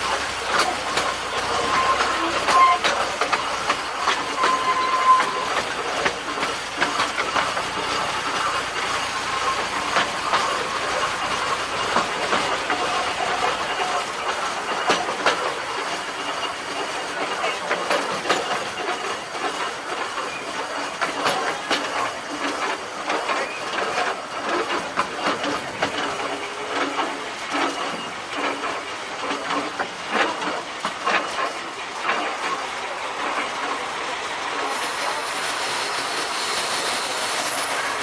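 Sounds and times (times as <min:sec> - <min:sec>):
train wheels clattering over rails: 0:00.0 - 0:38.0
steady rushing hiss: 0:32.8 - 0:38.0.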